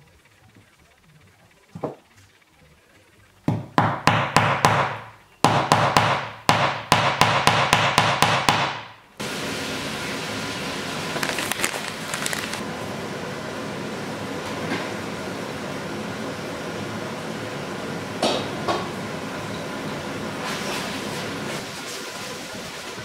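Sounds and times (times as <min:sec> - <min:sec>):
steady hiss: 0:09.0 - 0:12.7.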